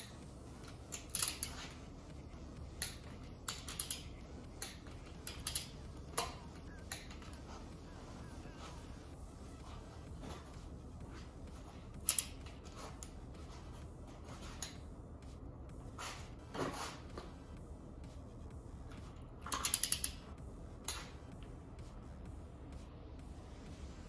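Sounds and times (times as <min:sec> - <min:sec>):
torque wrench ratcheting clicks: 0:00.9 - 0:01.5, 0:02.8 - 0:04.0, 0:19.5 - 0:20.2.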